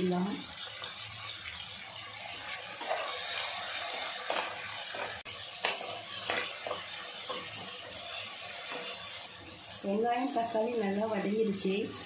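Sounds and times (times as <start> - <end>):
onions sizzling in hot oil: 0.0 - 12.0
spatula scraping a pan: 2.4 - 9.8.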